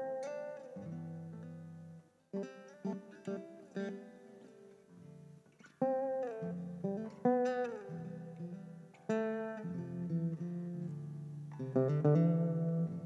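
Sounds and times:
fingerpicked resonator guitar: 0.0s - 13.0s.

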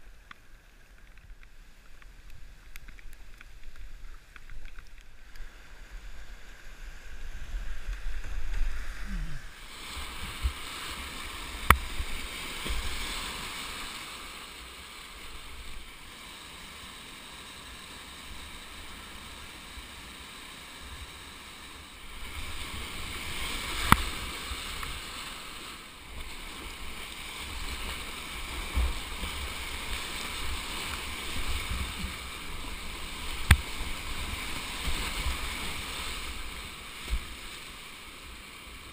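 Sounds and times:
whitewater rapids rushing: 9.0s - 38.9s.

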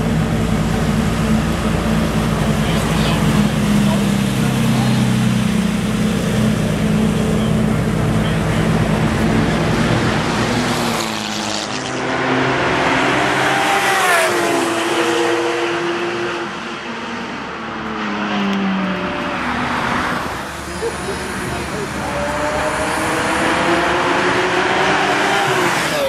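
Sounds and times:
car passing by fast: 8.6s - 26.0s.

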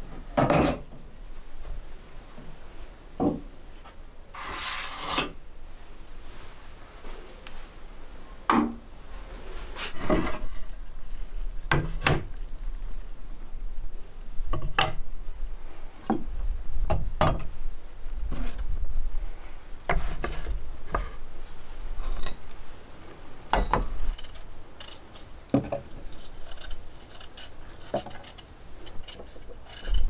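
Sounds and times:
wood scraping rub: 4.4s - 5.3s, 9.3s - 10.8s, 19.9s - 21.3s, 26.0s - 30.0s.

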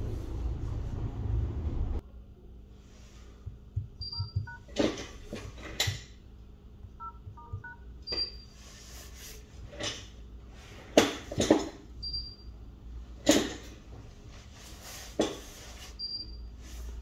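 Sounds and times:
phone keypad beeps: 4.0s - 4.7s, 7.0s - 8.4s.

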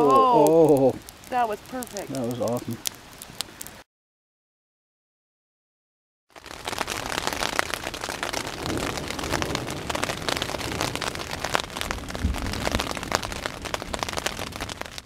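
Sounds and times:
heavy rain pattering: 0.0s - 3.8s, 6.3s - 15.0s
low rumbles: 6.8s - 15.0s.

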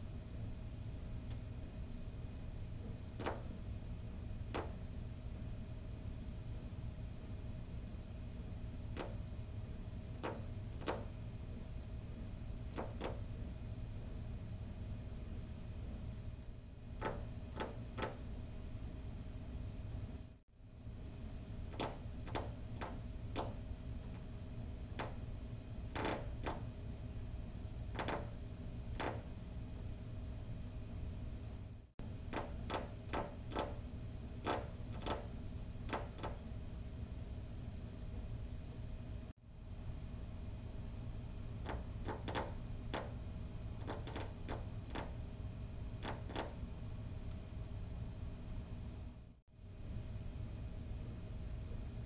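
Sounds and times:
bird tapping on window glass: 3.2s - 3.5s, 4.5s - 4.8s, 8.9s - 9.3s, 10.2s - 11.2s, 12.7s - 13.3s, 17.0s - 18.2s, 21.7s - 24.3s, 24.9s - 25.2s, 25.9s - 26.6s, 27.9s - 29.3s, 32.2s - 36.4s, 41.6s - 43.2s, 43.8s - 45.2s, 46.0s - 46.6s.

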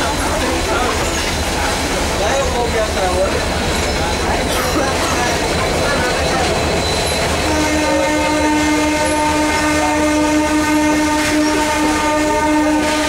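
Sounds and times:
train rumbling on track: 0.0s - 13.0s
train horn blast: 7.4s - 13.0s.

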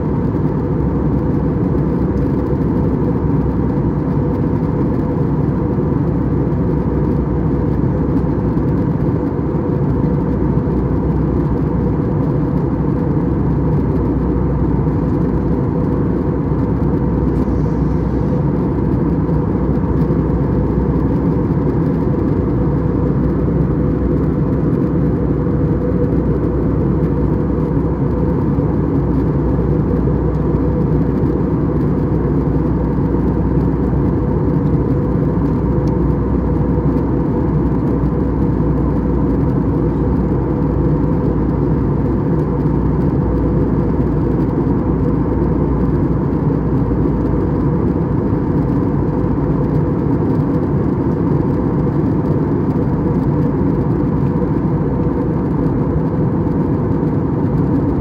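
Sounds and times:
airplane cabin drone: 0.0s - 58.0s.

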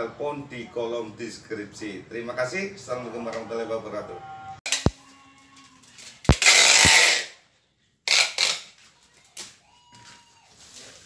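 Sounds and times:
packing tape screech: 5.6s - 7.4s, 8.1s - 8.8s.

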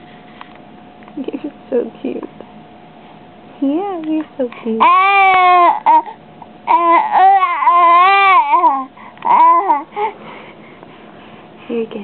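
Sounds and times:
baby babbling: 4.8s - 9.9s.

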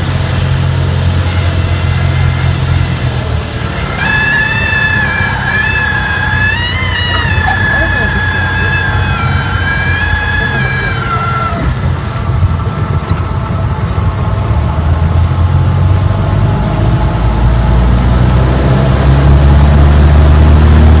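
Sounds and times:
airflow: 0.0s - 15.1s
high whine dropping in pitch: 0.0s - 21.0s
propeller aeroplane engine drone: 0.0s - 21.0s
runway rumble: 0.0s - 21.0s.

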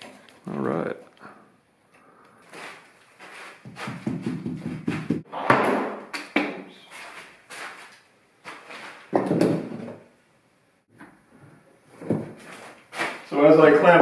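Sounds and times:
wooden strips and clamps knocking: 3.7s - 5.2s.

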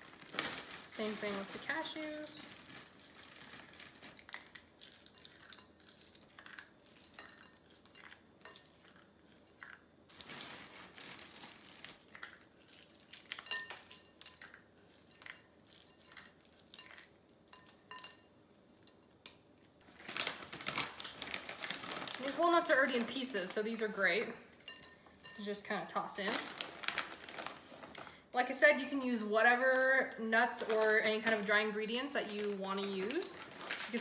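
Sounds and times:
rustling: 26.2s - 28.1s.

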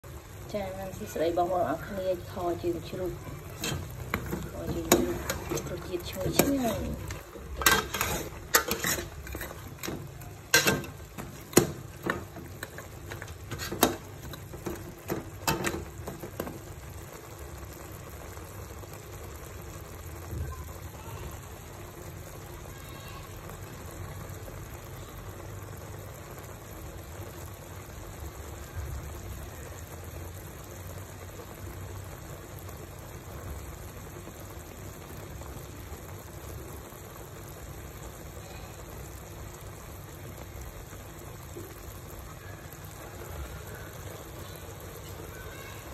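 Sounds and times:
stew simmering and bubbling: 0.0s - 45.9s
ladle scraping metal pot: 2.3s - 16.6s.

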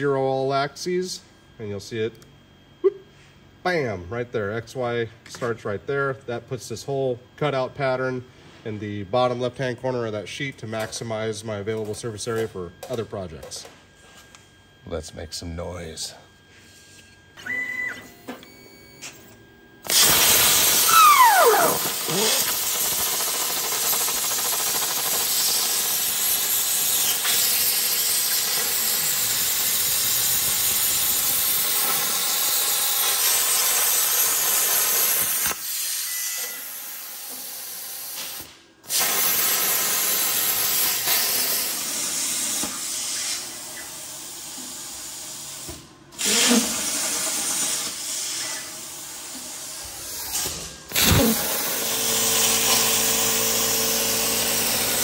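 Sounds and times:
plasma cutter hissing: 19.8s - 55.0s.

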